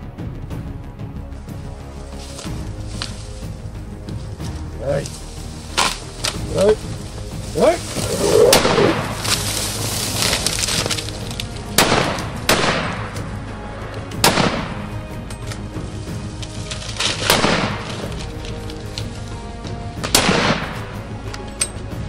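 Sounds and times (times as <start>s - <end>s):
background music: 0.0s - 22.0s
heavy rifle shots: 11.7s - 13.1s, 14.2s - 14.8s, 17.1s - 18.0s, 20.0s - 20.9s.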